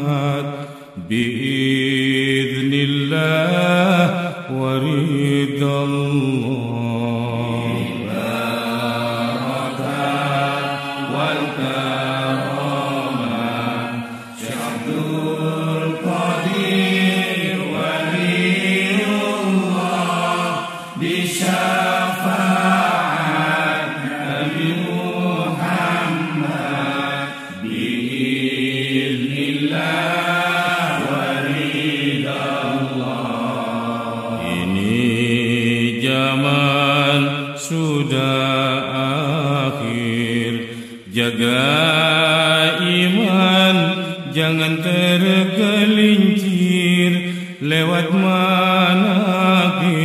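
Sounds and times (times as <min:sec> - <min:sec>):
person chanting slow melody: 0:00.0 - 0:50.0.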